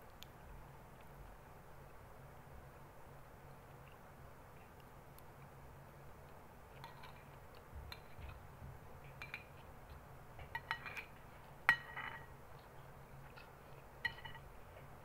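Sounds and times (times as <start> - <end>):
metal spoon clinking on glass bowl: 11.7 - 12.3, 14.0 - 14.5.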